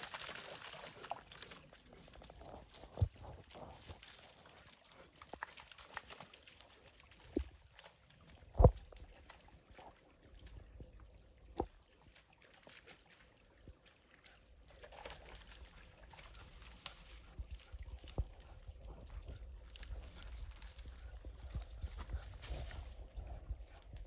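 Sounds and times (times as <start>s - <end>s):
creek trickling over rocks: 0.0s - 24.0s
footsteps through brush and twigs: 15.0s - 24.0s.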